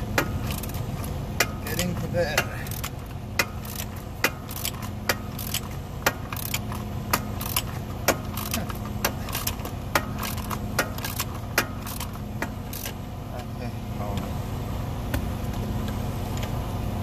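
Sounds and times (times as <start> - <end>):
steady low hum: 0.0 - 17.0
ratchet wrench clicking: 0.2 - 13.0.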